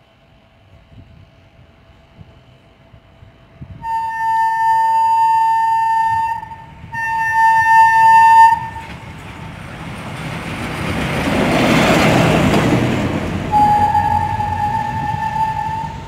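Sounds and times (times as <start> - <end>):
railcar rumbling past: 0.0 - 16.0
railcar horn blasts: 3.6 - 9.0, 13.4 - 16.0.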